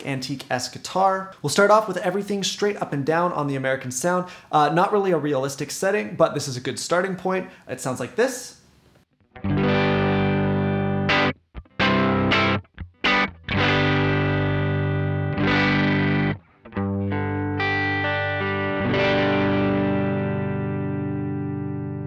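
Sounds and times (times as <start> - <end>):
overdriven electric guitar chords: 9.2 - 22.0.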